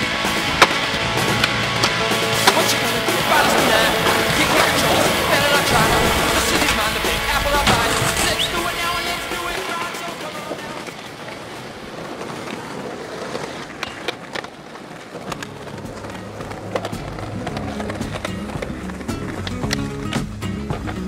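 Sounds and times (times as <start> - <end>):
background music with bass: 0.0 - 9.8, 15.5 - 21.0
skateboard clacks: 0.0 - 21.0
skateboard wheels rolling on pavement: 0.0 - 21.0.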